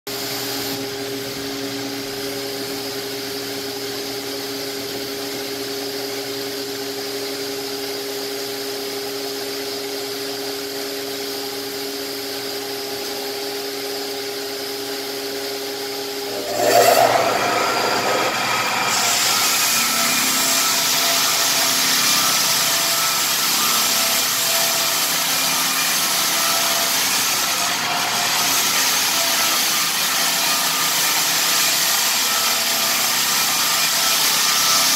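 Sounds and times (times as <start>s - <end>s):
floor sander motor hum: 14.6s - 26.2s.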